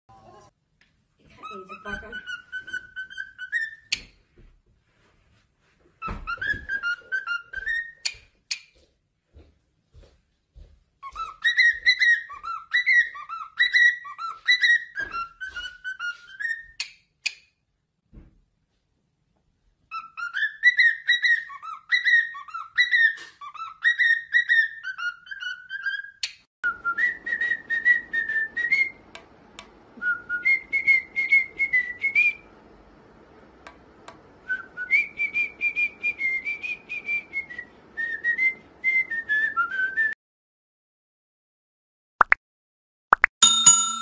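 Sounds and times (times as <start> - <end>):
cockatiels whistling: 1.4 - 4.1, 6.0 - 8.2, 11.0 - 16.9, 19.9 - 29.0, 30.0 - 32.4.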